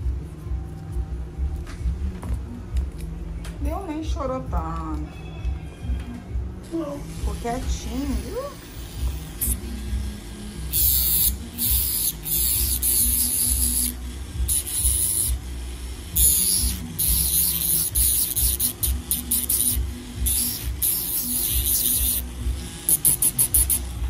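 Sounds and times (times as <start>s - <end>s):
rotary sanding disc grinding toenail: 10.7s - 15.4s, 16.2s - 22.2s, 22.8s - 24.0s.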